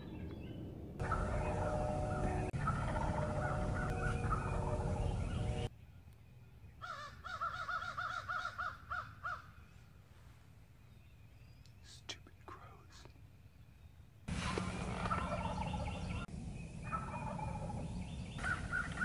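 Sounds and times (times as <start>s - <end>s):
chorus of birds calling: 0.0s - 5.7s, 14.3s - 19.0s
turkey call hen yelps: 6.8s - 9.5s.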